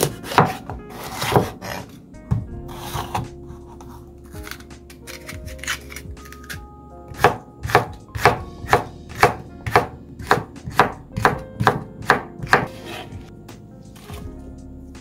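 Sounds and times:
knife chopping on cutting board: 0:00.0 - 0:05.8, 0:07.2 - 0:13.0.

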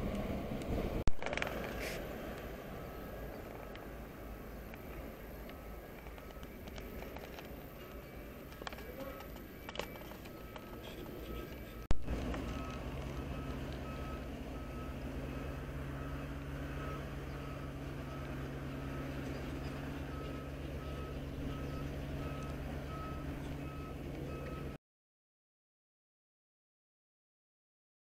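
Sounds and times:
diesel engine humming: 0:00.0 - 0:24.8
reversing alarm beeping: 0:02.5 - 0:24.8.

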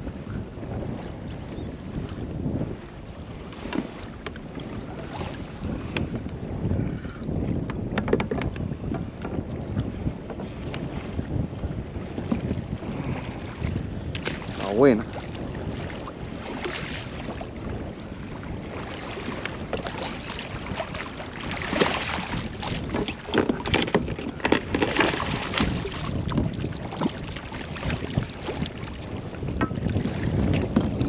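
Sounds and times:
wind buffeting microphone: 0:00.0 - 0:31.0
sharp knocks and rattles: 0:07.9 - 0:09.0, 0:22.9 - 0:25.2.

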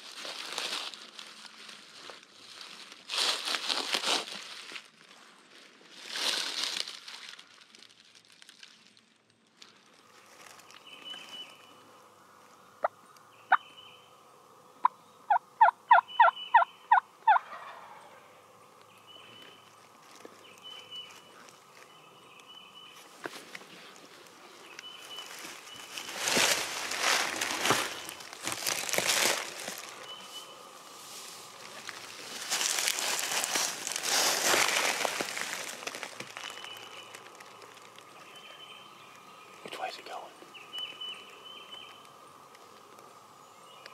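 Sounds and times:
leaf litter crunching and rustling: 0:00.0 - 0:11.8, 0:19.5 - 0:22.0, 0:22.8 - 0:38.8
turkey yelps: 0:15.3 - 0:16.7, 0:17.3 - 0:18.0.

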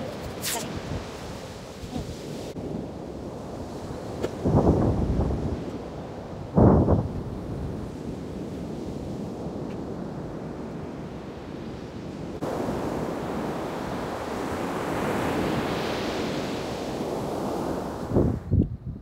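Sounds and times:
wind buffeting microphone: 0:00.0 - 0:10.3, 0:17.6 - 0:19.0.

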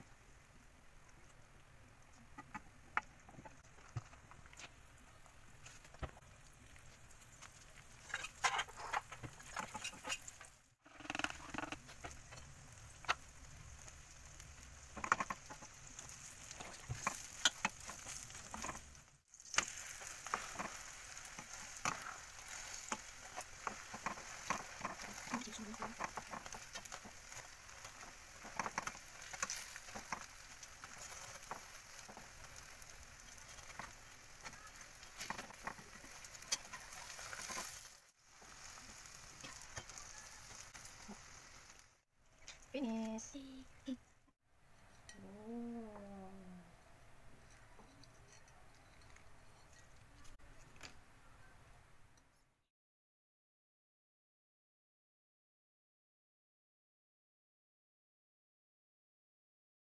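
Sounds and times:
food sizzling in oil: 0:03.4 - 0:43.4
spatula scraping a pan: 0:07.4 - 0:41.8.

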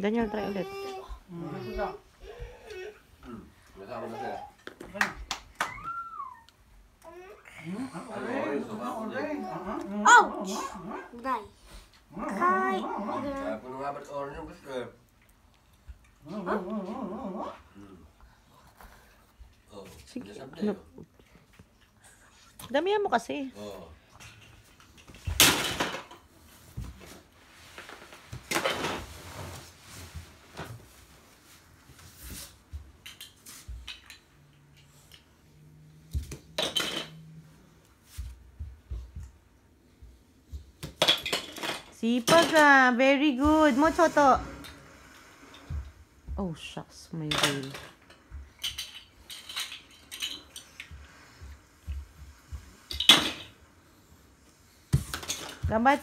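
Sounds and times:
child's footsteps: 0:00.0 - 0:02.9, 0:38.0 - 0:40.9
plastic toys clattering: 0:24.2 - 0:26.2, 0:36.6 - 0:37.2, 0:41.0 - 0:42.8, 0:47.3 - 0:51.0, 0:55.1 - 0:55.6.

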